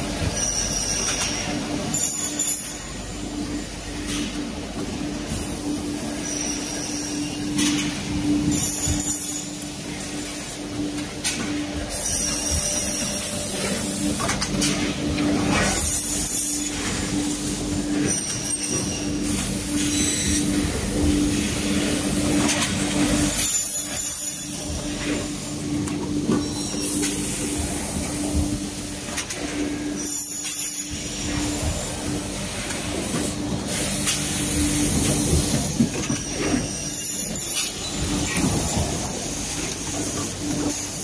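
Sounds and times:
machinery motor hum: 0:02.8 - 0:30.0.

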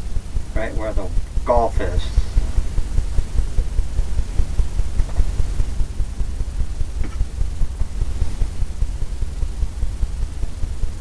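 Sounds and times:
low fluttering rumble: 0:00.0 - 0:11.0.

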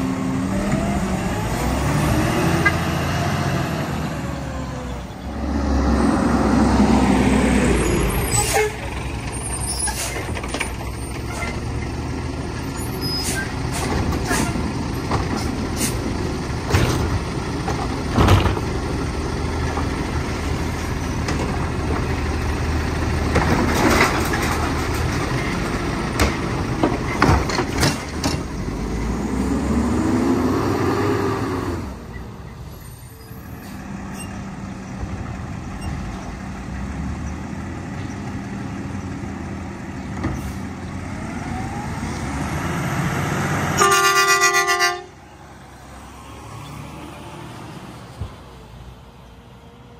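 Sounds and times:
truck horn toot: 0:08.3 - 0:08.9, 0:43.7 - 0:45.2
metal clanks and knocks: 0:23.3 - 0:28.5.

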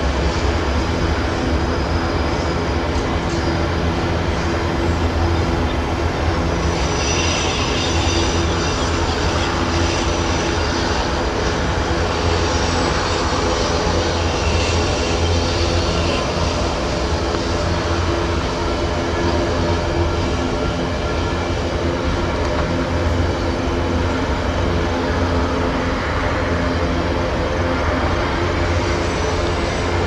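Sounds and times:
train cars rumbling: 0:00.0 - 0:30.0
high wheel squeal: 0:06.2 - 0:19.7.

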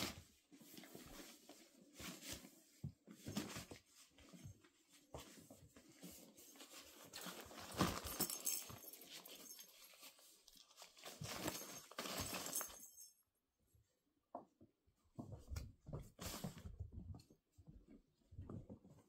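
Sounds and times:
nylon fabric crinkling: 0:06.5 - 0:12.9.

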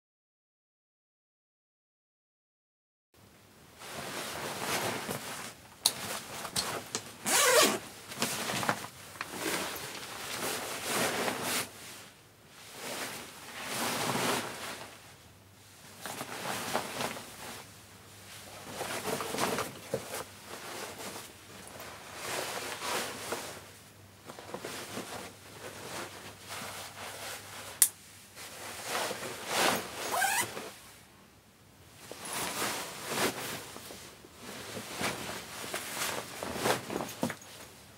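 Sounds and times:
fabric rustling: 0:03.8 - 0:15.0, 0:18.3 - 0:27.8, 0:28.4 - 0:30.8, 0:32.0 - 0:37.9
zips opening and closing: 0:07.2 - 0:07.8, 0:29.7 - 0:30.6.

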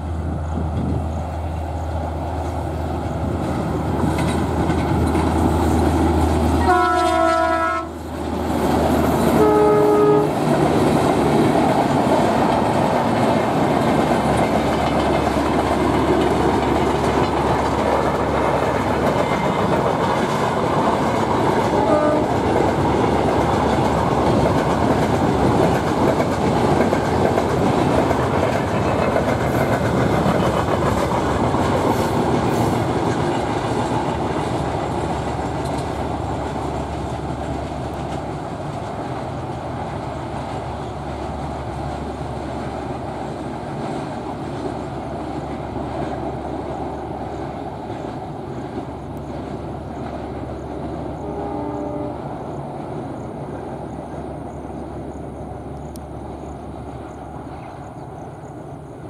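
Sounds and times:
locomotive engine drone: 0:00.0 - 0:59.0
train wheels clickety-clack: 0:00.0 - 0:59.0
diesel locomotive horn: 0:06.5 - 0:08.1, 0:09.2 - 0:10.6, 0:21.6 - 0:22.5, 0:51.2 - 0:52.4.

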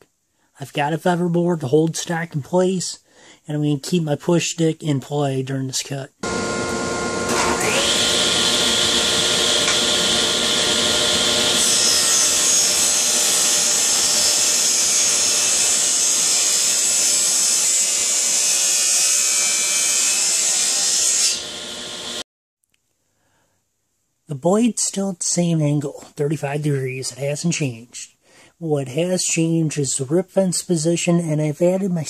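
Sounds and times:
table saw cutting wood: 0:06.2 - 0:22.2.

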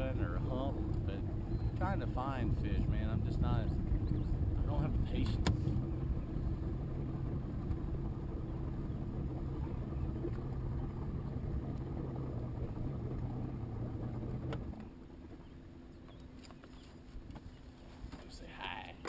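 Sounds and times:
outboard motor humming: 0:00.0 - 0:19.0.

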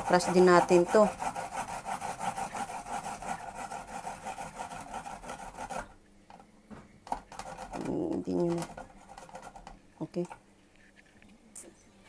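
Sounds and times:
garlic rasping on a grater: 0:00.0 - 0:05.9.

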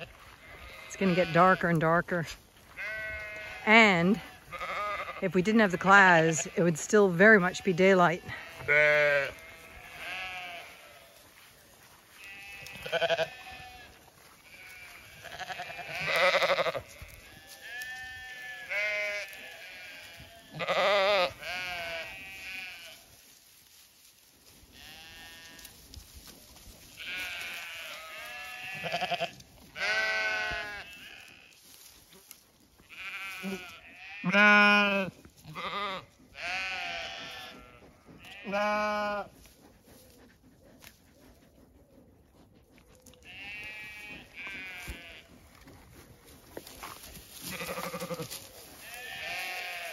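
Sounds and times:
sheep bleating: 0:00.0 - 0:23.1, 0:24.7 - 0:25.7, 0:27.0 - 0:31.6, 0:32.9 - 0:39.4, 0:43.2 - 0:45.4, 0:47.4 - 0:49.9.

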